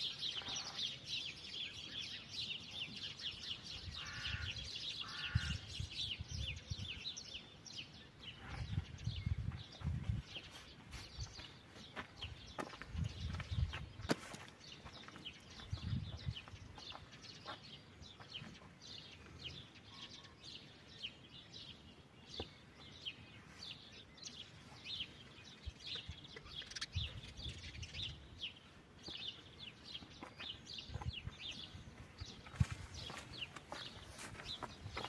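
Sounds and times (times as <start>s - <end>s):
small birds chirping: 0.0s - 35.0s
soft low thumps: 8.4s - 10.4s.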